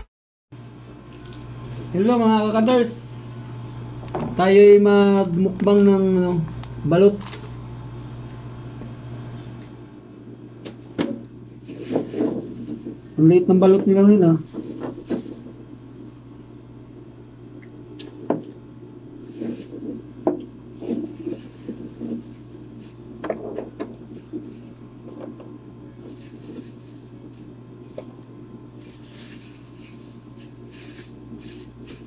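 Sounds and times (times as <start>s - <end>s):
steady low hum: 0.6s - 32.0s
plastic bag rustling: 7.0s - 7.6s, 11.4s - 16.3s, 19.1s - 32.0s.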